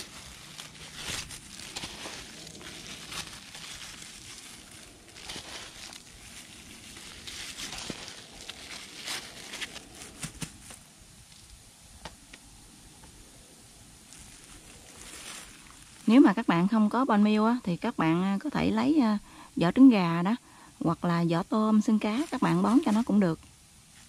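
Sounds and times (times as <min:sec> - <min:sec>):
plastic bag crinkling: 0:00.0 - 0:10.8, 0:14.0 - 0:16.6, 0:22.0 - 0:23.3
granules sprinkled onto soil: 0:00.0 - 0:11.6, 0:14.0 - 0:17.3, 0:21.5 - 0:24.0.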